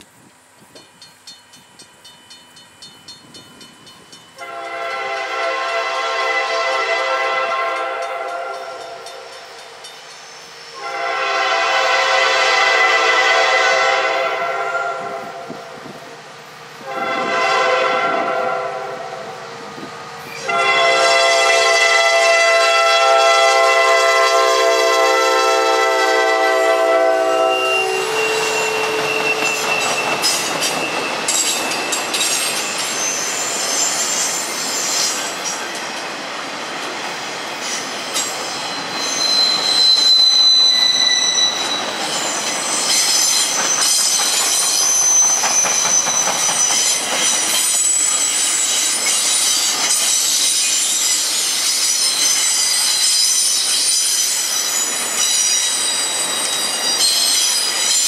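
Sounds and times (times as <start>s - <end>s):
train wheels clattering on track: 0.0s - 5.5s, 6.8s - 13.0s, 27.7s - 58.0s
locomotive horn: 4.4s - 9.1s, 10.7s - 15.7s, 16.8s - 19.4s, 20.2s - 30.4s
high-pitched wheel squeal: 27.2s - 35.6s, 37.6s - 58.0s.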